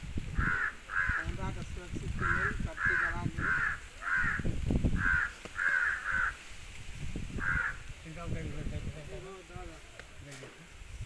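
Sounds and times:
crow cawing: 0.4 - 1.4, 2.2 - 6.5, 7.4 - 7.9.

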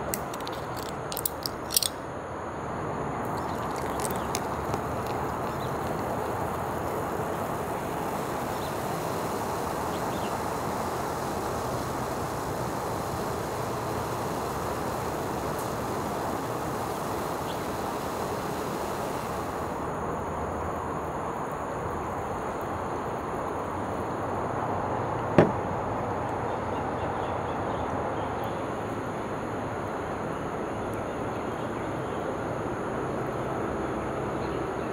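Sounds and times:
low rushing background noise: 0.0 - 34.9
high hiss: 3.2 - 22.9.

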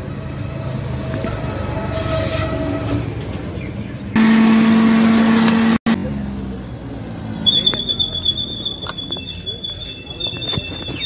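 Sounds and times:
road traffic: 0.0 - 11.0
loud steady tone with rushing: 4.2 - 6.0.

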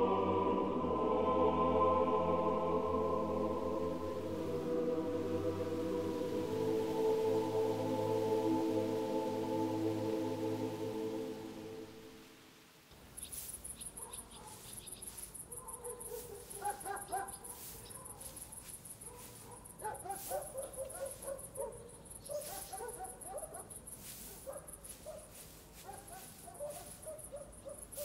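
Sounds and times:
insects chirping: 3.3 - 28.0
hay rustling with pitchfork: 13.0 - 21.6, 22.3 - 28.0
dog barking: 14.0 - 14.8, 15.5 - 18.4, 19.0 - 28.0.

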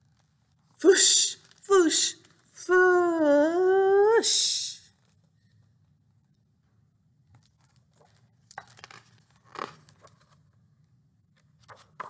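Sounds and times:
book pages rustling: 7.3 - 10.6, 11.3 - 12.0.

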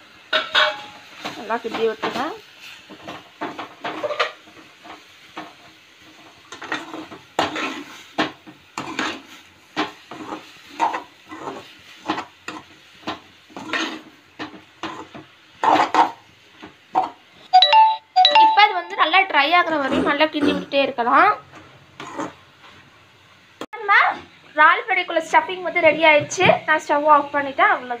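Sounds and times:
metal spatula scraping a pan: 0.3 - 16.2, 21.9 - 22.8.

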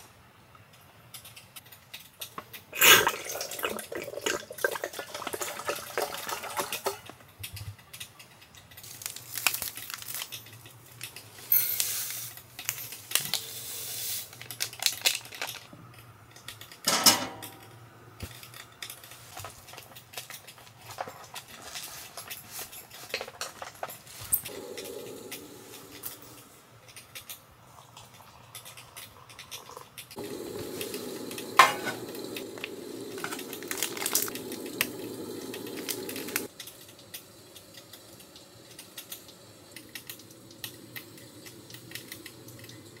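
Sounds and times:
cookware and utensils clinking: 1.8 - 7.2, 16.6 - 17.8, 28.0 - 37.2
coffee powder pouring into mug: 2.8 - 7.0, 24.5 - 26.3, 28.2 - 36.5
water running into metal kettle: 2.8 - 7.0, 29.7 - 36.5.

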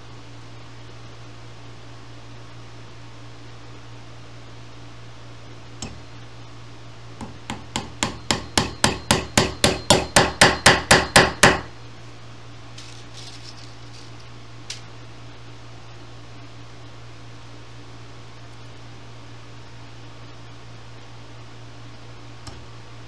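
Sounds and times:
hammer tapping tacks into wood: 7.2 - 11.7.

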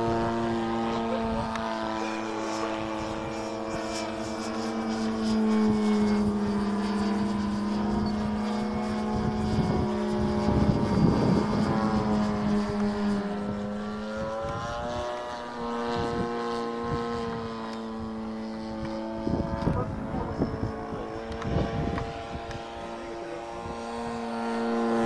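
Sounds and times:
model airplane motor buzzing: 0.0 - 25.0.

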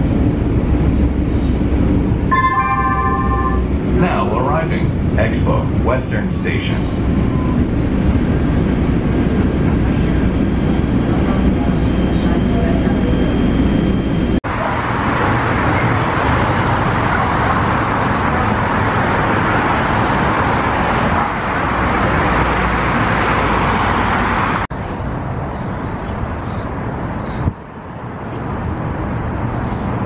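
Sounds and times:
distant traffic hum: 0.0 - 30.0
freeway traffic passing: 0.0 - 30.0.

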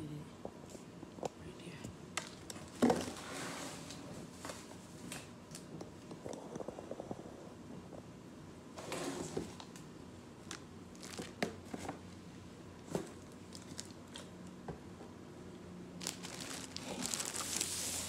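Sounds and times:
plastic packaging crinkling: 10.4 - 12.0, 13.0 - 14.3, 16.0 - 18.0.

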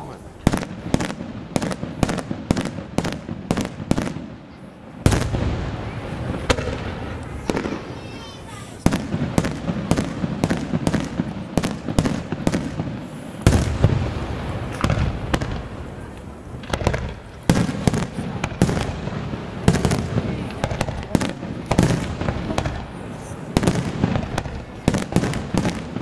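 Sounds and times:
heavy firework booms: 0.0 - 26.0
firework shells bursting: 8.6 - 26.0.

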